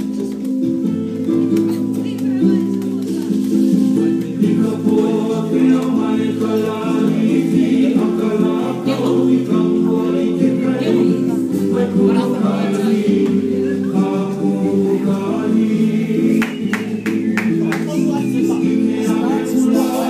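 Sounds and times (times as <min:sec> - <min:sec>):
several voices singing together: 0:04.4 - 0:20.0.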